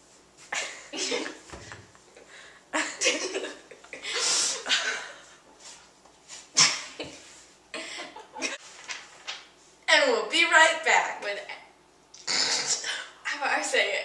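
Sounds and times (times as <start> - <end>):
girls laughing: 2.8 - 5.3, 6.6 - 8.6.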